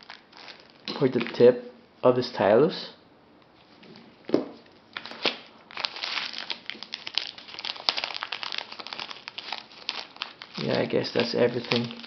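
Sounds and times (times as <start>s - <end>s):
plastic bag crinkling: 0.0s - 1.4s, 4.9s - 12.0s.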